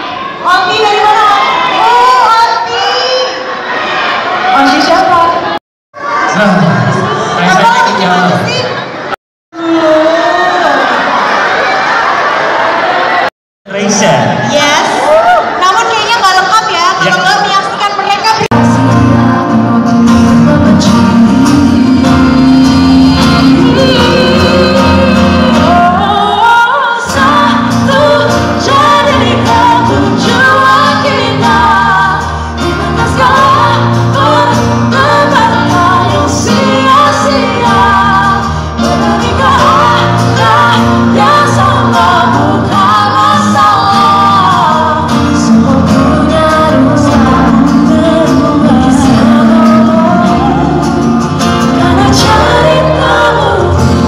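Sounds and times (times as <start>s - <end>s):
amplified instrumental accompaniment: 18.5s - 54.0s
women singing a duet: 18.5s - 54.0s.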